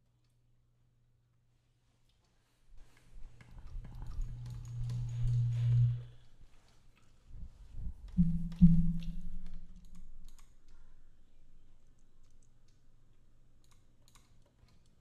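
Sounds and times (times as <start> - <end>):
computer mouse clicking: 3.4 - 5.8, 8.5 - 10.8, 13.6 - 15.0
low hum: 3.7 - 6.4, 7.4 - 12.4
low thumps: 8.2 - 9.8.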